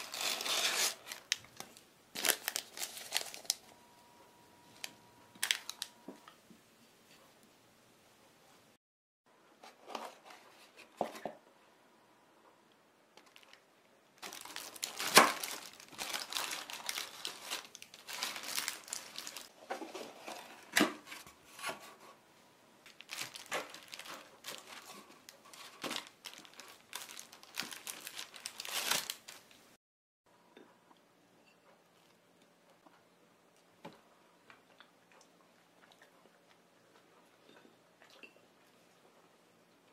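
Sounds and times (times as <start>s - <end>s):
paper liners crinkling: 0.0s - 3.8s, 4.8s - 6.0s, 14.2s - 19.5s, 22.9s - 29.6s.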